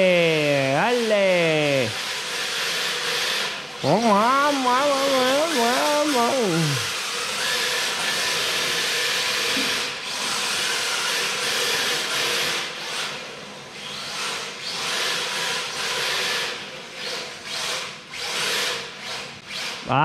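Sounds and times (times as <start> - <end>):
electric motor whine: 0.0 - 10.0.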